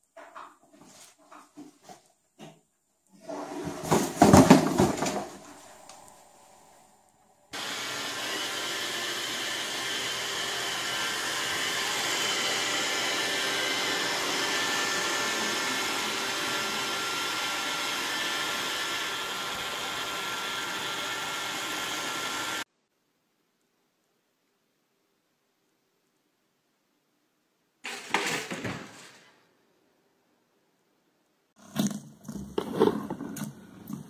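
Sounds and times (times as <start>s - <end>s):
robot vacuum cleaner whirring: 7.5s - 22.6s.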